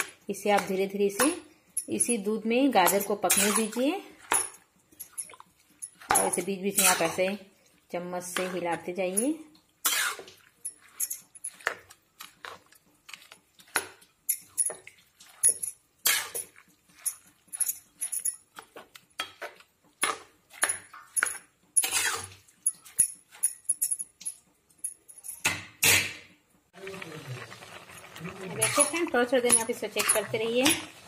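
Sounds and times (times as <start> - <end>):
metal spatula scraping metal pan: 2.8 - 4.5, 5.8 - 7.4, 8.2 - 12.6, 13.6 - 19.4, 20.6 - 23.4, 28.2 - 31.0.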